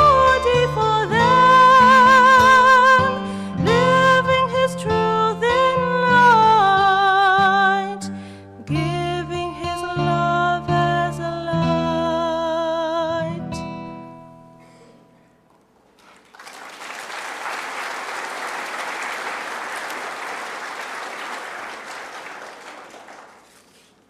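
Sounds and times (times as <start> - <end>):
audience applauding: 16.0 - 24.0.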